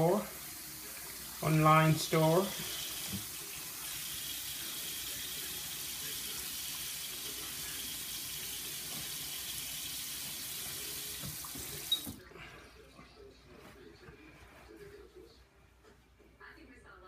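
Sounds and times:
sink faucet running into basin: 0:00.0 - 0:12.2.

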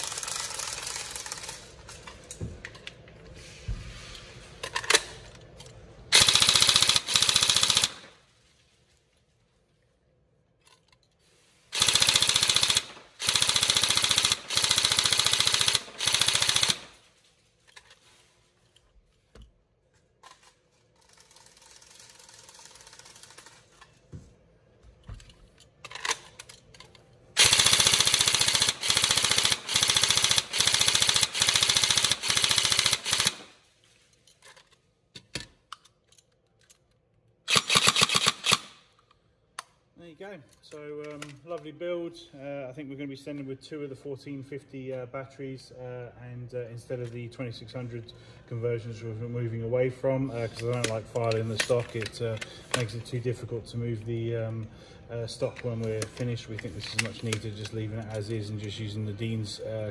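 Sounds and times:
airsoft rifle firing bursts: 0:06.1 - 0:08.1, 0:11.7 - 0:17.0, 0:27.4 - 0:33.6, 0:37.5 - 0:38.8.

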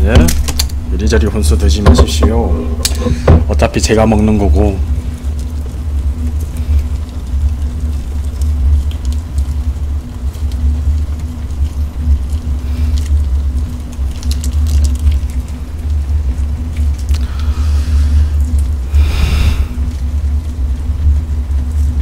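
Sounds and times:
faint hum: 0:00.0 - 0:22.0
low rumble: 0:02.2 - 0:22.0
plastic sachets crinkling: 0:11.2 - 0:16.0.

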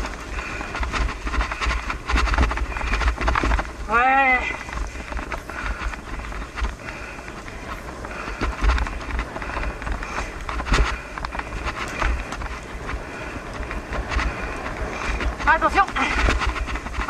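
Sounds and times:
bike rattling and knocking: 0:00.0 - 0:17.0
bike tyre noise on dirt: 0:00.0 - 0:17.0
wind buffeting microphone: 0:00.0 - 0:17.0.

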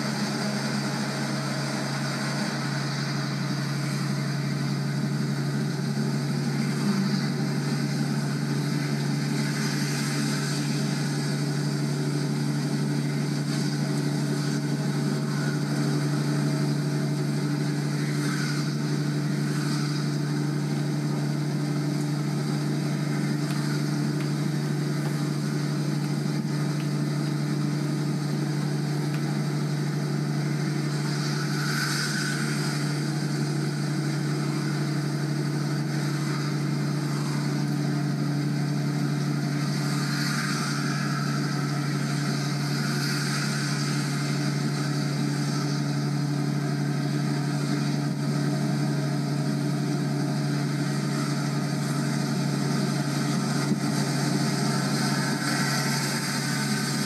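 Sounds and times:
car road noise: 0:00.0 - 0:57.0.

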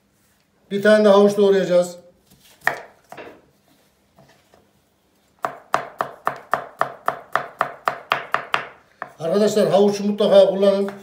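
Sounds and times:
knife chopping carrot on board: 0:02.6 - 0:03.4, 0:05.4 - 0:09.2.

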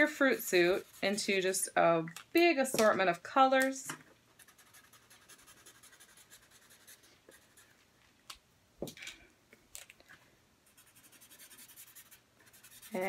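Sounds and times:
markers colouring on paper: 0:10.8 - 0:13.0.

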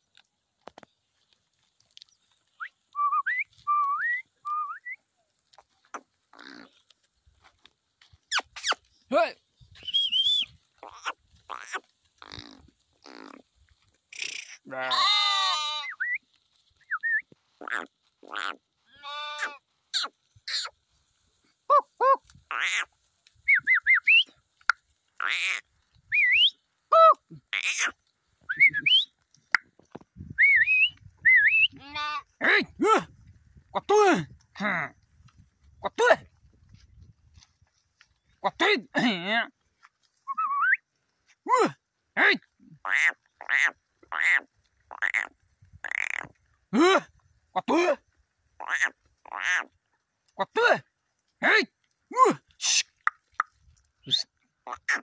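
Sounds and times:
person whistling: 0:02.6 - 0:05.0, 0:09.8 - 0:10.5, 0:28.5 - 0:29.1, 0:30.4 - 0:31.7, 0:40.3 - 0:40.8
high wavering whistled calls: 0:09.6 - 0:11.1, 0:23.4 - 0:24.4, 0:26.1 - 0:26.6, 0:27.6 - 0:29.2, 0:30.3 - 0:31.8, 0:40.2 - 0:40.8
faint sheep bleat: 0:14.6 - 0:16.0, 0:17.6 - 0:19.6, 0:31.7 - 0:33.0.

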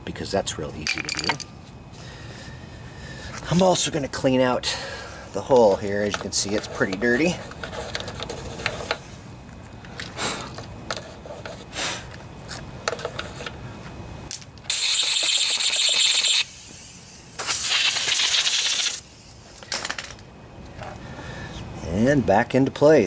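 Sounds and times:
hissing spray: 0:14.7 - 0:19.5.

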